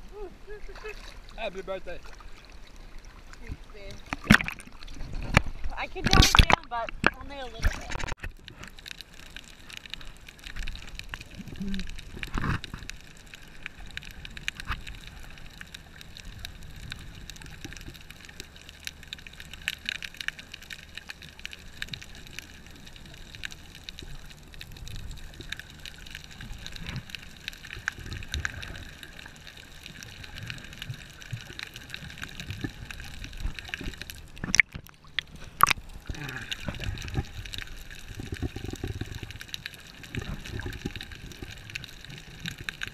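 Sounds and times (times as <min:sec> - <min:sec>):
muffled underwater water sloshing: 0:00.0 - 0:42.9.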